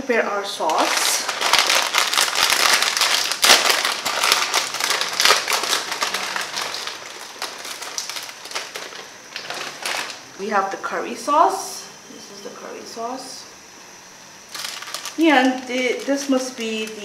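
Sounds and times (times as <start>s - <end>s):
plastic wrapper crinkling: 0.6s - 10.3s, 14.5s - 17.0s.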